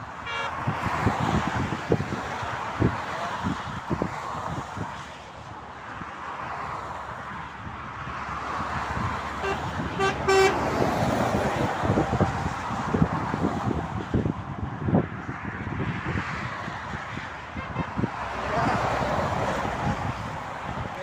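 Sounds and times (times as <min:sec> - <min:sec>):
highway traffic rushing: 0:00.0 - 0:21.0
vehicle horn toots: 0:00.2 - 0:00.6, 0:09.4 - 0:10.7, 0:17.6 - 0:18.1.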